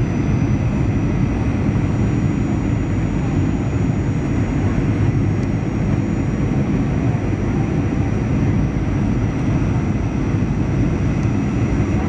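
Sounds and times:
faint high whine: 0:00.0 - 0:08.6
jet engine rumble: 0:00.0 - 0:12.0.

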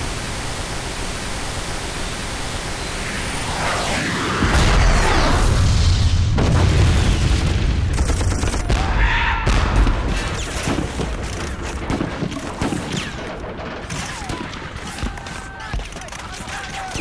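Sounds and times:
deep rumbling boom: 0:03.7 - 0:08.0.

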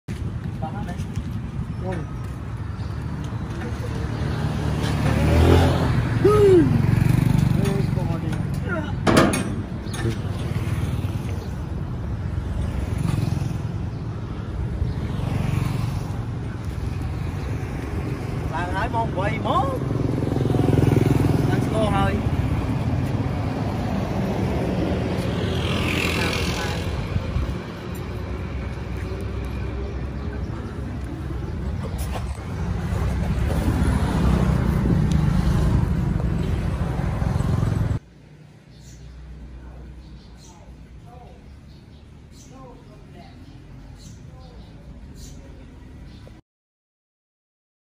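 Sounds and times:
vehicle engine rumbling: 0:00.1 - 0:38.2.

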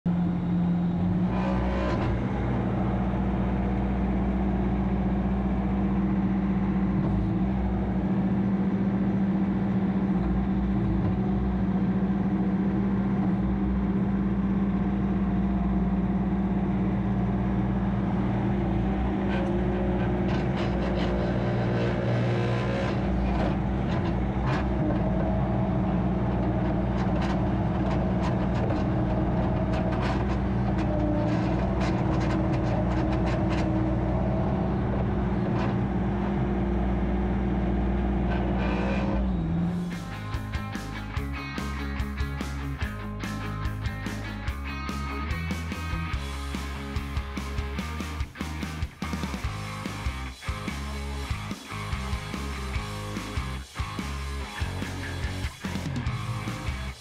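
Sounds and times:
diesel engine running: 0:00.1 - 0:57.0.

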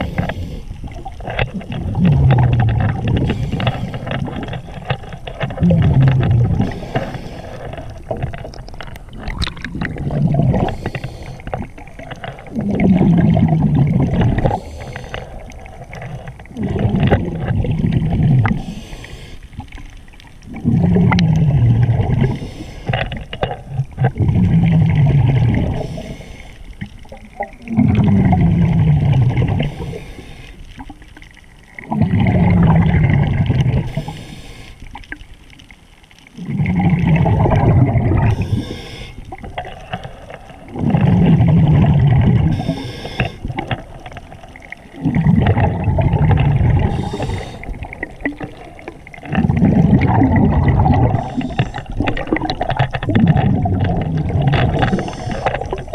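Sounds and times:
diver breathing through regulator: 0:00.0 - 0:00.8, 0:03.1 - 0:04.5, 0:05.6 - 0:08.1, 0:09.9 - 0:11.7, 0:14.2 - 0:15.6, 0:18.4 - 0:19.6, 0:20.8 - 0:23.3, 0:24.4 - 0:26.8, 0:27.8 - 0:30.7, 0:33.7 - 0:34.9, 0:36.4 - 0:43.8, 0:46.4 - 0:50.1, 0:50.8 - 0:52.4, 0:54.4 - 0:55.9
bubbling exhalation: 0:00.0 - 0:18.9, 0:20.4 - 0:30.0, 0:31.7 - 0:34.2, 0:36.3 - 0:55.9.

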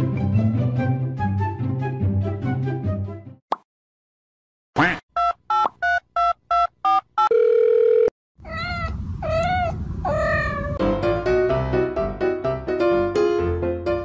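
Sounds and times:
telephone dialing beeps: 0:05.2 - 0:08.1
held telephone tone: 0:06.5 - 0:08.1
kitten meowing: 0:08.4 - 0:10.8.

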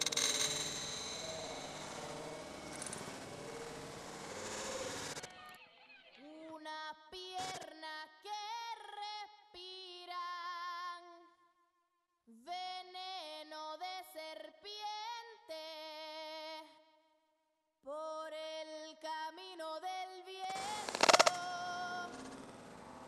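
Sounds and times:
woman singing with vibrato: 0:06.2 - 0:11.1, 0:17.9 - 0:22.2.

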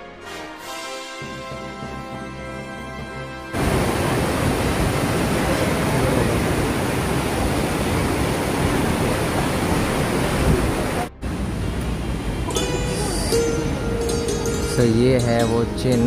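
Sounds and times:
stream water rushing over boulders: 0:03.6 - 0:13.8.

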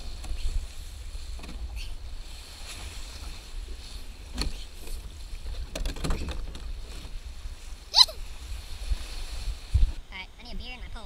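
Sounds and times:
plastic kayak scraping rocks: 0:02.5 - 0:07.6.

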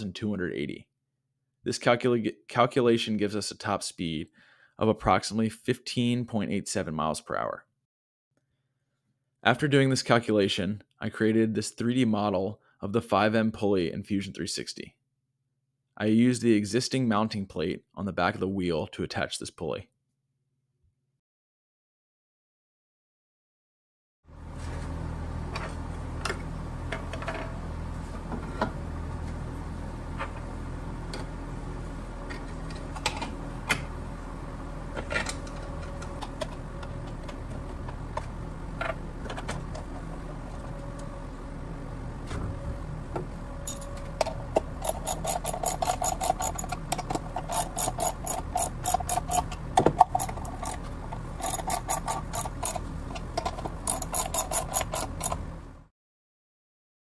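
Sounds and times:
ratcheting wrench clicking: 0:43.7 - 0:43.9, 0:44.6 - 0:55.5
clicks and knocks of hardware: 0:43.7 - 0:55.5.

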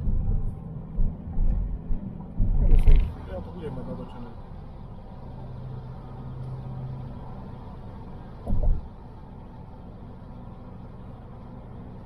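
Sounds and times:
car engine and road noise: 0:00.0 - 0:12.0
loud low thump: 0:08.4 - 0:08.8.

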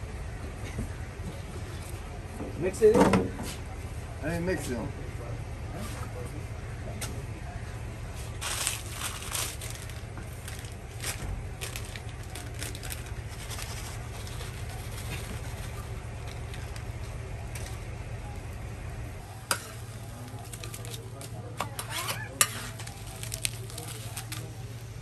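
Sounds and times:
steady low hum: 0:00.0 - 0:25.0
chip packet crinkling: 0:08.4 - 0:17.0, 0:20.1 - 0:21.5, 0:22.2 - 0:25.0.

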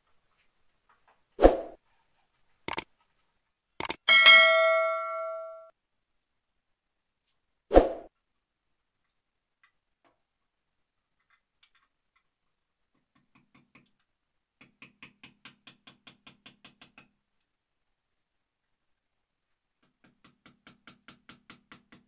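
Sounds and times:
hammer tapping on a nail: 0:13.0 - 0:14.0, 0:14.6 - 0:17.2, 0:19.8 - 0:22.0.

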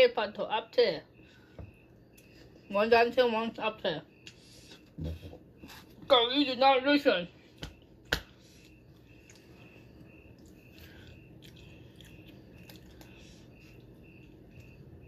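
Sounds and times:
chewing noodles: 0:08.6 - 0:15.0.

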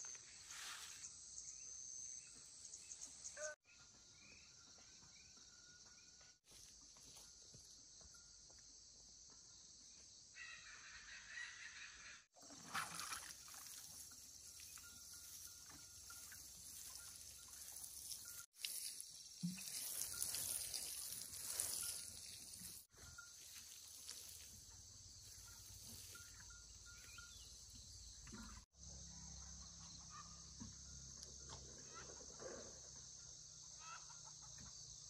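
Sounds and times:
high insect drone: 0:13.5 - 0:28.1
water sprinkling onto soil: 0:16.6 - 0:22.9.

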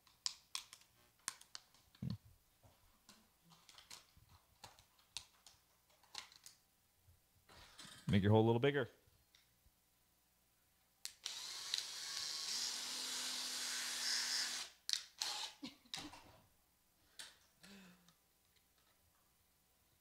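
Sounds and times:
cordless drill running: 0:11.2 - 0:15.6.

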